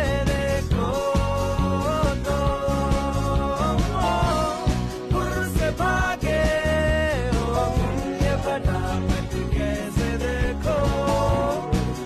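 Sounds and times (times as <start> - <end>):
song with beat: 0.0 - 12.0.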